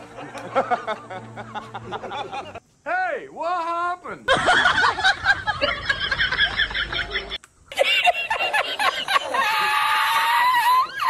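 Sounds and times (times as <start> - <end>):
laughter ending in high squeal: 4.3 - 11.0.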